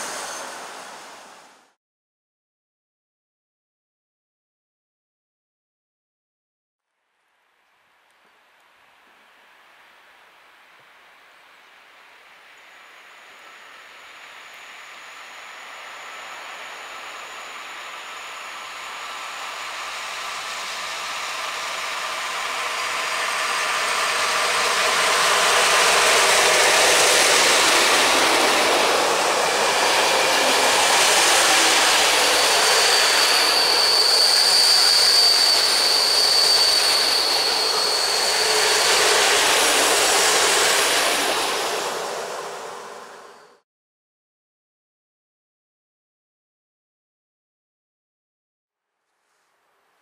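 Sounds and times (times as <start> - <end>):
electric locomotive hauling train: 0.0 - 1.8, 8.8 - 43.6.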